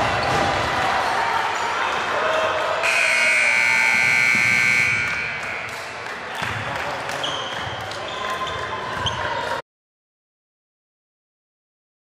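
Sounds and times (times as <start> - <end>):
voices in a gym: 0.0 - 9.6
scoreboard buzzer blast: 2.8 - 5.8.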